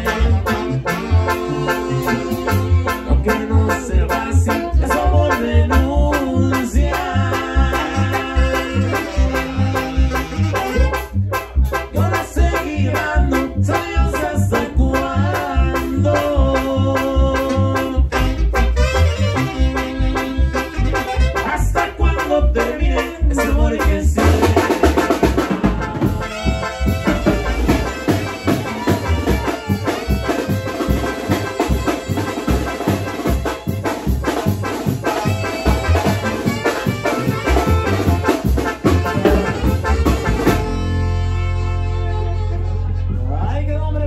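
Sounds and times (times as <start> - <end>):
alto saxophones: 0.0 - 3.3, 6.5 - 14.4, 15.0 - 22.3, 24.4 - 43.4
electronic keyboard: 0.0 - 6.2.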